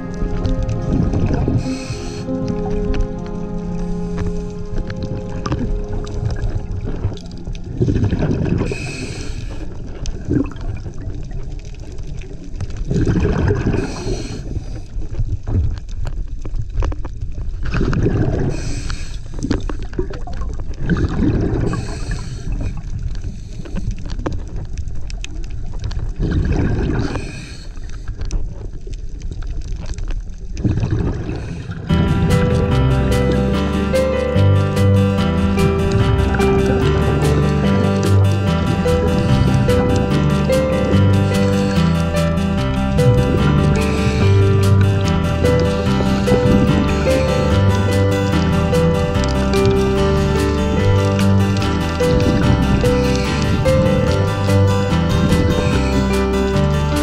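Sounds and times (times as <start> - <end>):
music: 0.0 - 8.9, 31.9 - 57.0
diver exhaling bubbles: 5.4 - 11.4, 12.9 - 14.7, 17.7 - 18.8, 19.5 - 22.7, 26.1 - 27.6, 30.6 - 32.6, 35.6 - 48.8.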